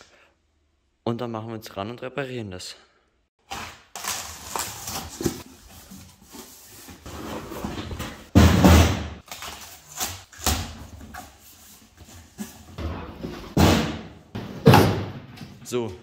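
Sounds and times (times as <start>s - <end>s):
cardboard rustling and scraping: 3.5s - 8.5s
cardboard thud: 8.2s - 9.2s, 13.4s - 15.2s.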